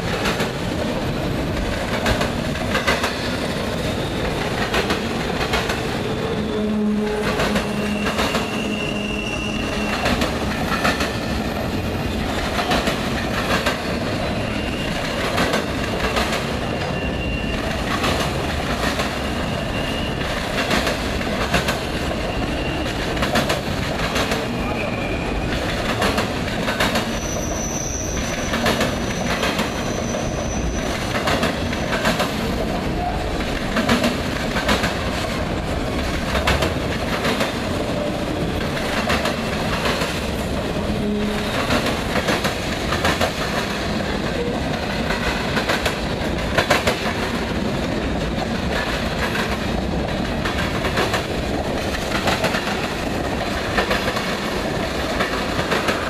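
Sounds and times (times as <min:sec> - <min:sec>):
steel wheels clattering over rails: 0:00.0 - 0:56.0
high wheel squeal: 0:06.3 - 0:10.3, 0:14.2 - 0:15.2, 0:16.6 - 0:17.9, 0:19.2 - 0:20.4, 0:22.2 - 0:23.1, 0:24.5 - 0:25.5, 0:27.1 - 0:31.1.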